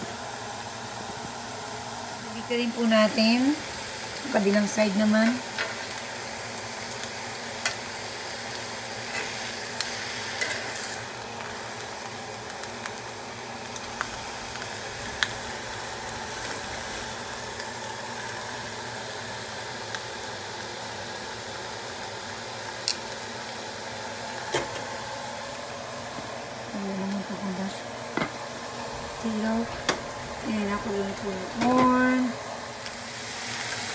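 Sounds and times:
steaks sizzling on a grill pan: 0:00.0 - 0:33.9.

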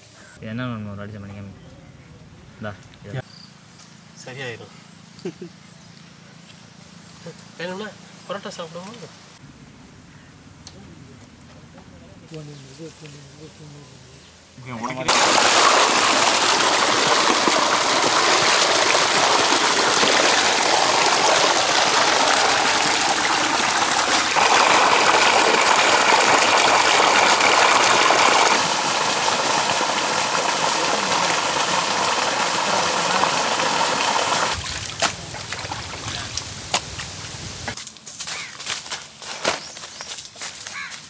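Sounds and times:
water gushing from pipe: 0:15.1 - 0:37.3.

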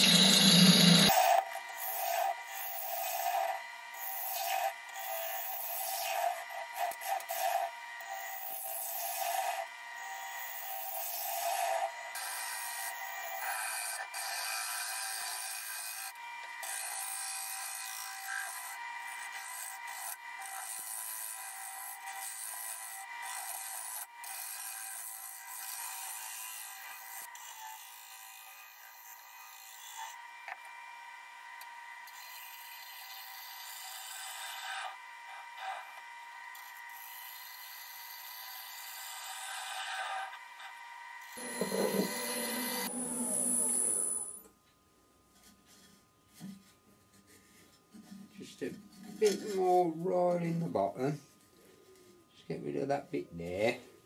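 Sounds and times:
lathe tool scraping wood: 0:00.0 - 0:27.9, 0:36.6 - 0:44.4
faint lathe whine: 0:00.0 - 0:44.6.

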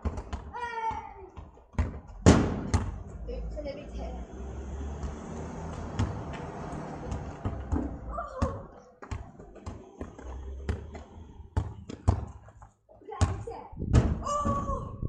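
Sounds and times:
ball thudding on tarmac: 0:00.0 - 0:03.1, 0:05.0 - 0:12.6.

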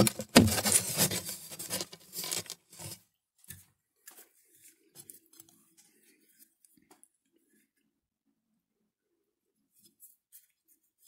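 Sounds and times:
faint clicks of handling wires: 0:00.0 - 0:07.4
rustling of hands handling wires: 0:00.0 - 0:07.8.

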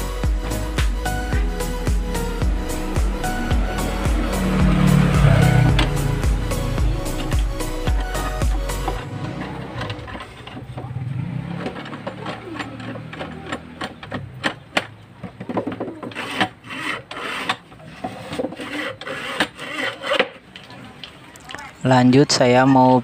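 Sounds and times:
plywood parts knocking and rubbing: 0:11.6 - 0:20.5.

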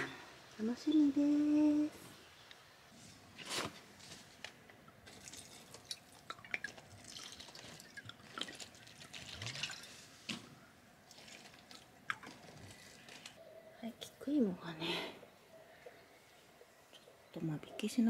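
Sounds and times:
paper rustling: 0:03.3 - 0:05.3
water trickling and dripping: 0:04.8 - 0:10.4, 0:11.0 - 0:13.4.

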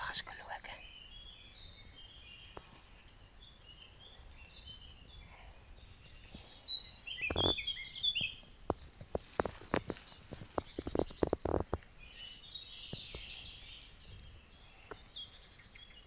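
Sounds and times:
birds chirping and trilling: 0:00.0 - 0:16.0
footsteps on dry leaves: 0:07.3 - 0:11.6.

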